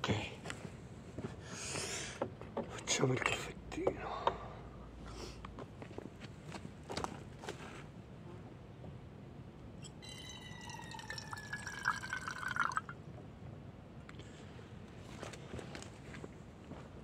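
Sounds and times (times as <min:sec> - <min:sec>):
water gurgling into a pot: 0:10.6 - 0:12.9.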